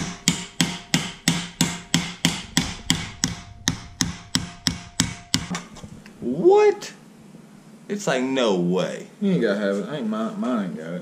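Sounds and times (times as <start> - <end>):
hammer tapping: 0.0 - 5.8.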